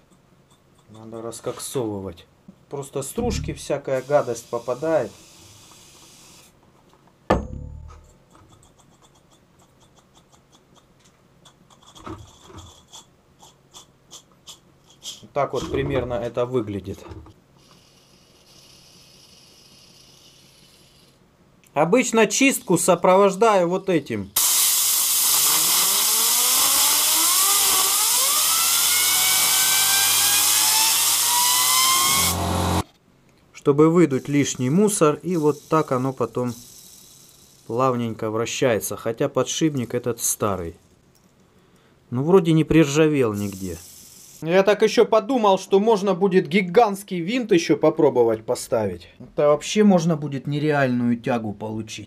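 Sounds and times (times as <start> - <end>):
aerosol spray hissing: 3.9 - 6.6, 24.4 - 26.6, 34.2 - 37.8, 43.3 - 44.4
compressed air hissing: 3.9 - 6.6, 17.6 - 21.2, 24.4 - 32.8, 34.1 - 37.8, 43.3 - 44.4
sharp knock: 7.3 - 8.2.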